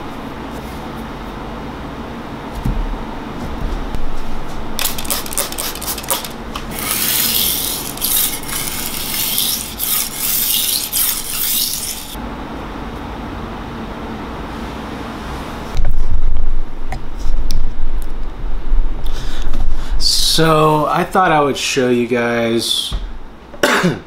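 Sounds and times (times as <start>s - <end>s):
knife blade scraping on whetstone: 4.8s - 12.2s.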